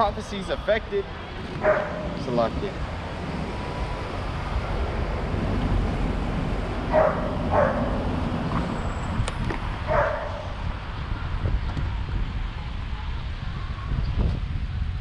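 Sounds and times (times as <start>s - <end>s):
wind rumble on microphone: 0.0s - 15.0s
dog barking: 1.6s - 2.2s, 6.9s - 8.1s, 9.9s - 10.6s.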